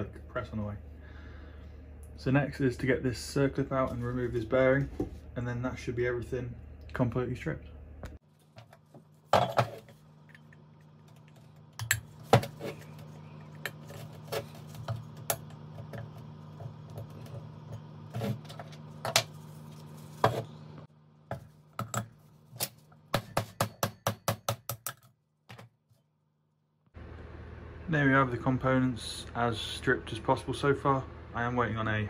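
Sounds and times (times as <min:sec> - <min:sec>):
low hum: 0:09.4 - 0:22.9.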